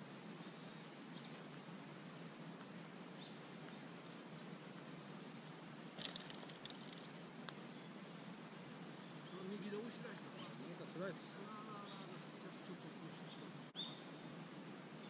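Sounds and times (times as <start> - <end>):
low steady hiss: 0.0 - 15.0
faint bird chirps: 3.1 - 8.1, 8.9 - 14.3.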